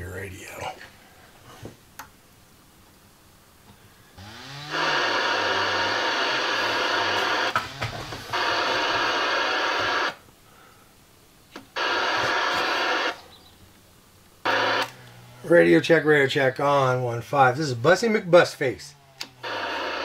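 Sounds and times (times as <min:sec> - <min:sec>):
radio static hiss: 0:00.0 - 0:20.0
radio control clicks: 0:08.3 - 0:10.2, 0:11.5 - 0:13.2, 0:14.5 - 0:15.2.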